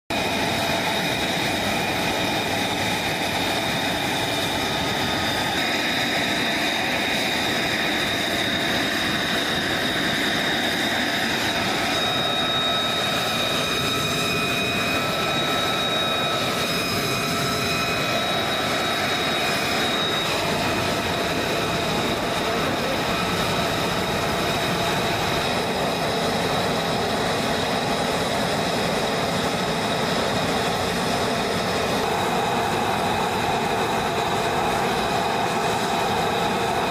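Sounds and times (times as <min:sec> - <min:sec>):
continuous rush of noise: 0:00.1 - 0:36.9
jet engine whine: 0:00.1 - 0:36.9.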